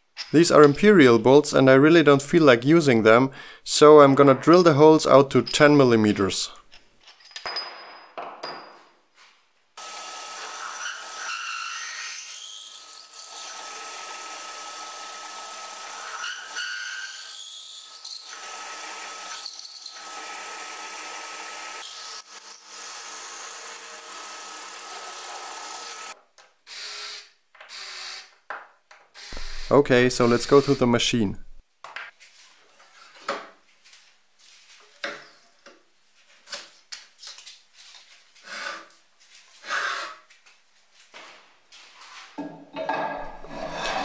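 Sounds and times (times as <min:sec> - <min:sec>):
cordless drill bursts on metal: 0:29.2 - 0:30.8.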